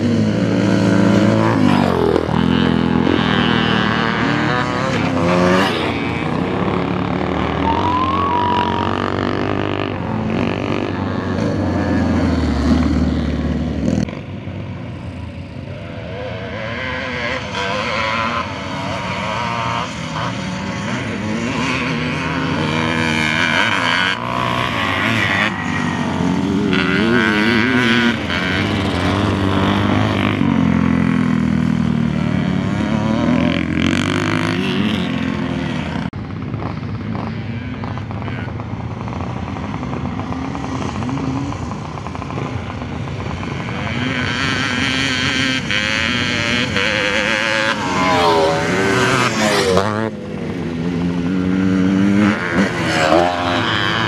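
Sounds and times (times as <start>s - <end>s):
motocross bikes racing: 0.0s - 54.0s.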